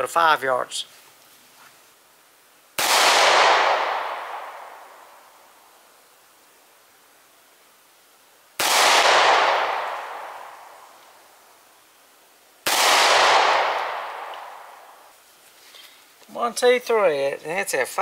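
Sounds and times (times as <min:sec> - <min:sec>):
pistol shots: 0:02.8 - 0:04.8, 0:08.6 - 0:10.6, 0:12.6 - 0:14.7.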